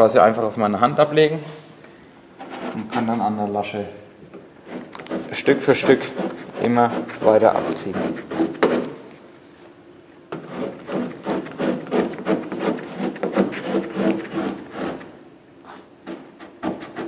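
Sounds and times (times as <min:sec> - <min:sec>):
rubbing and scraping on paper: 0:02.4 - 0:03.2, 0:04.6 - 0:08.9, 0:10.4 - 0:15.1, 0:15.7 - 0:17.0.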